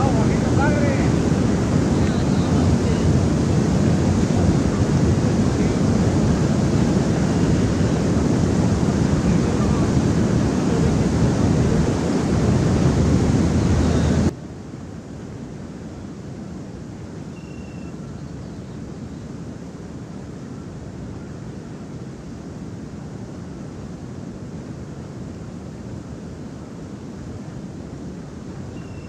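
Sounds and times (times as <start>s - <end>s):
water rushing over weir: 0.0s - 18.2s
wind on microphone: 0.0s - 29.0s.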